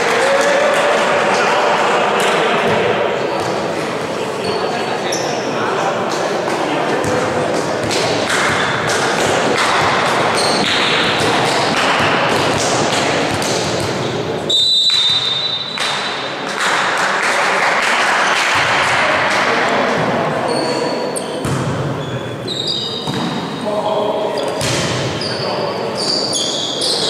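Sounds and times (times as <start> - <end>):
sneaker squeaks on court floor: 4.4 - 5.4, 10.3 - 11.6, 13.3 - 16.2, 20.4 - 27.0
volleyball hits: 6.9 - 17.5, 21.4 - 22.0, 23.0 - 23.5, 24.5 - 25.2
referee's whistle blast: 14.5 - 15.8.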